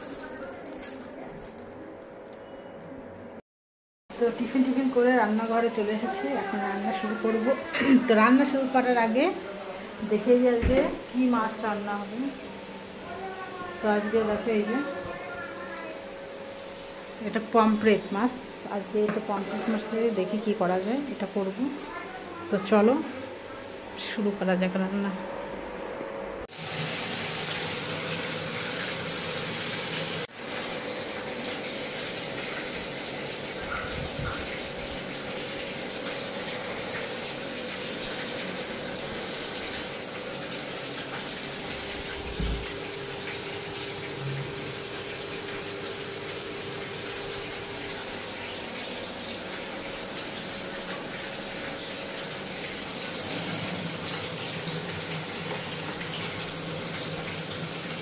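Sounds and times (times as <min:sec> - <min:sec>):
fish sizzling in hot oil: 0:26.5 - 0:58.0.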